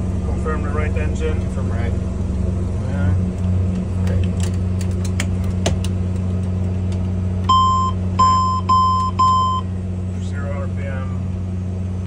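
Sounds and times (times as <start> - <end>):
turboprop engine drone: 0.0 - 12.0
warning tone beeps: 7.5 - 9.7.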